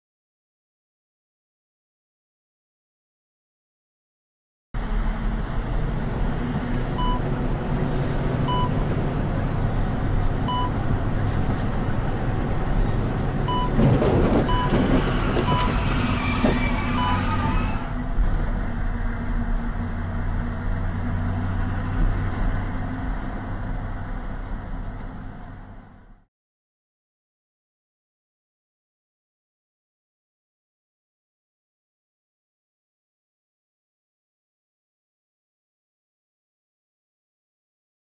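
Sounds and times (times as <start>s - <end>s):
truck engine droning: 4.8s - 26.2s
electronic alert beeps: 7.0s - 7.3s, 8.5s - 8.8s, 10.5s - 10.8s, 13.5s - 13.8s, 14.5s - 15.9s, 17.0s - 17.6s.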